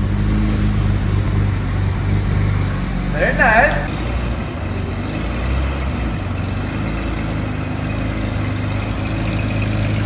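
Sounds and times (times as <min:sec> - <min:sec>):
car engine low hum: 0:00.0 - 0:10.0.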